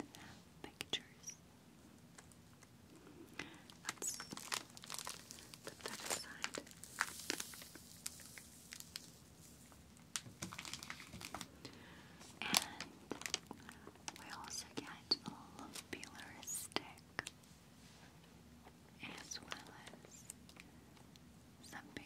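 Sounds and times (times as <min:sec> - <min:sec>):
cellophane crinkling: 0:03.7 - 0:11.5, 0:12.4 - 0:14.4.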